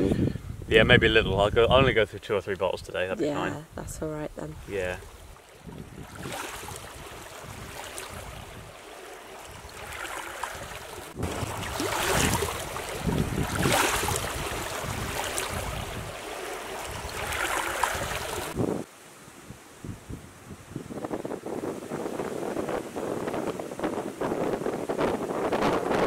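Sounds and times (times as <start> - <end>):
waves lapping on pebble shore: 4.6 - 18.6.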